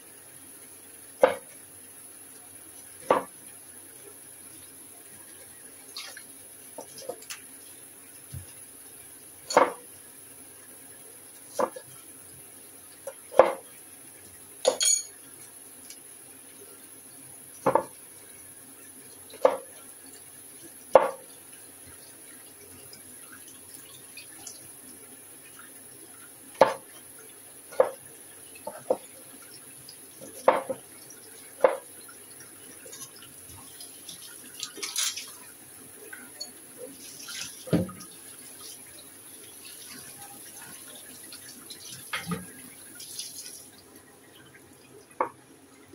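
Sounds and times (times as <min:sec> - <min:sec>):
knife chopping on cutting board: 0:09.5 - 0:09.8.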